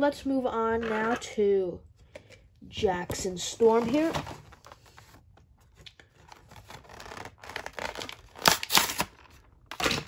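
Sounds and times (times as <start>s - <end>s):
plastic crackle: 5.9s - 10.0s.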